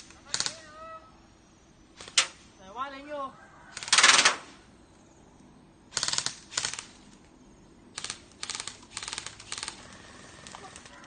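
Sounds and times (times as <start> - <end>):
airsoft gun bursts: 0.0 - 0.7, 3.7 - 4.5, 5.9 - 7.0, 7.9 - 11.0.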